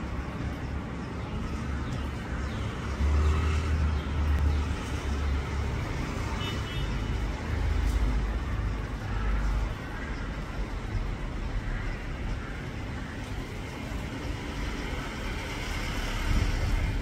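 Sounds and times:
outdoor background rumble: 0.0s - 17.0s.

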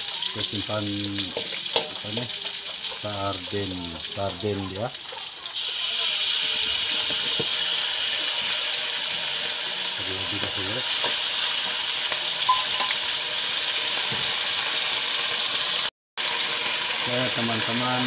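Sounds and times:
fish and onion sizzling in a wok: 0.0s - 18.0s.

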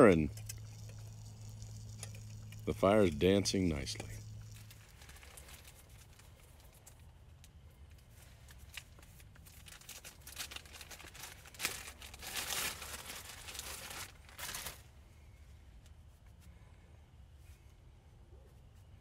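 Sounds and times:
bark twigs and leaves crackling: 0.3s - 7.0s, 8.5s - 14.8s.

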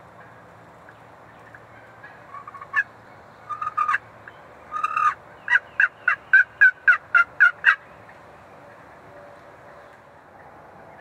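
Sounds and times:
turkey yelping: 1.7s - 2.9s, 3.5s - 4.0s, 4.7s - 7.8s.

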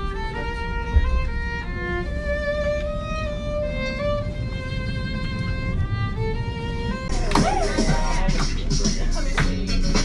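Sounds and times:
violin long notes: 0.0s - 7.3s
jumble of voices: 7.1s - 10.0s.

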